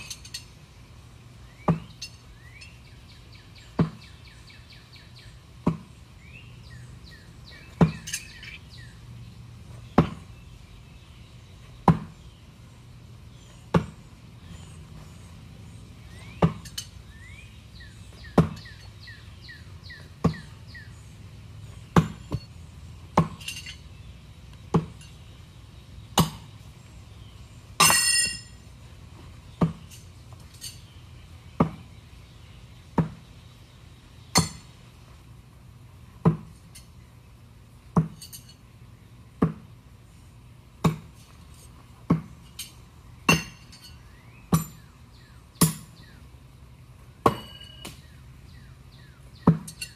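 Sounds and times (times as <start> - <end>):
birds chirping: 0.0 - 49.9
knives striking wooden target: 47.2 - 48.0.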